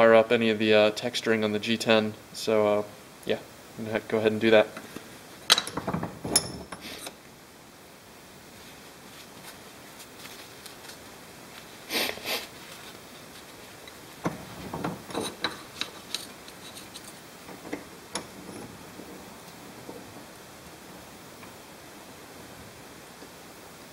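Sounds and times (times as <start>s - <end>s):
light clicks and knocks at vise: 4.8s - 7.2s, 13.9s - 20.4s
paper towels rustling: 8.5s - 14.2s.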